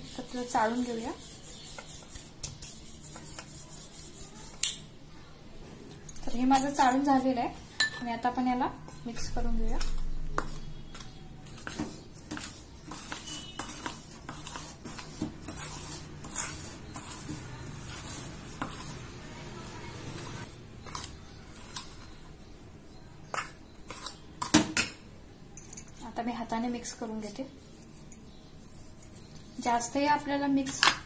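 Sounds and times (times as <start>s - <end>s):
metal spoon scraping steel bowl: 9.7s - 19.2s.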